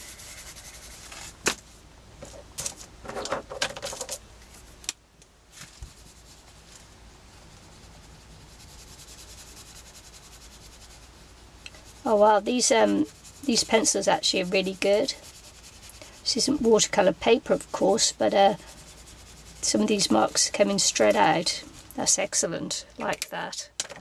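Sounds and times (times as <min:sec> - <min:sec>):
pencil scribbling on paper: 0:00.0 - 0:01.1, 0:07.7 - 0:11.1, 0:11.8 - 0:22.4
brush pen brushing on paper: 0:00.0 - 0:01.4, 0:05.6 - 0:22.5.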